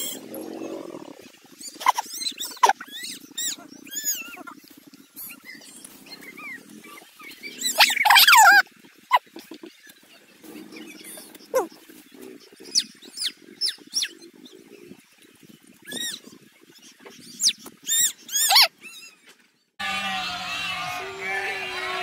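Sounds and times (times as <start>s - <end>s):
goats and sheep bleating: 19.8s - 22.0s.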